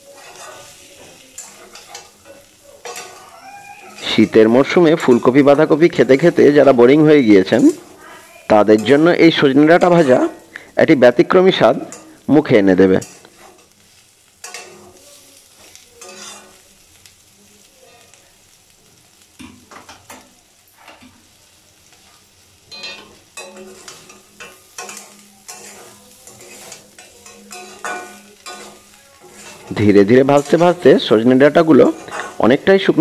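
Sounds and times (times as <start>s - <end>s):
metal spatula scraping pan: 0.0s - 8.0s, 8.6s - 10.3s, 13.0s - 13.8s, 14.4s - 16.6s, 22.7s - 32.6s
light sizzle: 0.0s - 33.0s.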